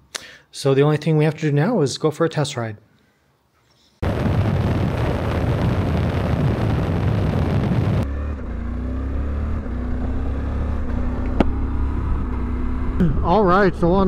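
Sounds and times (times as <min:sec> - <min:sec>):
wind rushing over microphone: 0:04.0 - 0:08.1
motorcycle engine drone: 0:04.0 - 0:14.0
road noise: 0:04.2 - 0:14.0.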